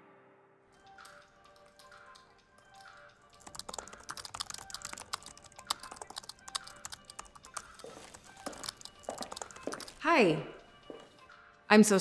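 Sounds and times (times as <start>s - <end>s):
laptop keyboard typing: 1.0s - 10.0s.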